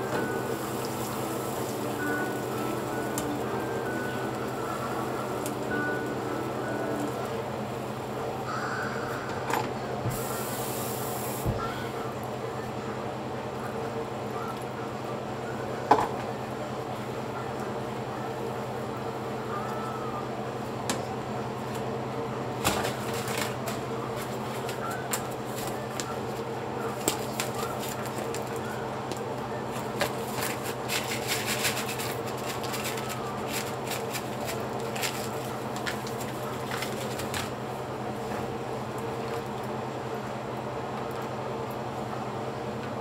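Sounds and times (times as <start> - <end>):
paper sachet crinkling and tearing: 30.0 - 37.5.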